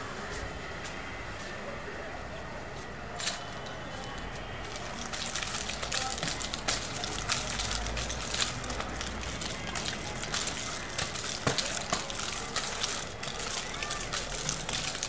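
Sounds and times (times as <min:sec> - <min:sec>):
nunchaku whooshing and clicking: 0:04.7 - 0:15.0.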